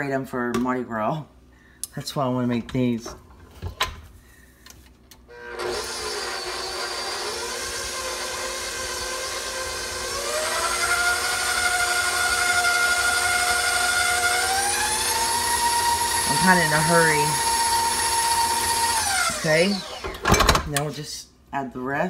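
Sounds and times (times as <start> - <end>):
stand mixer motor running: 5.4 - 20.2.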